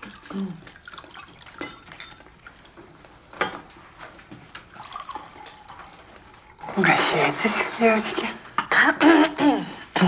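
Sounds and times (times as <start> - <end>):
wine pouring into glass: 0.0 - 2.7, 4.6 - 6.8
glassware clinking: 1.2 - 2.3, 3.4 - 3.7.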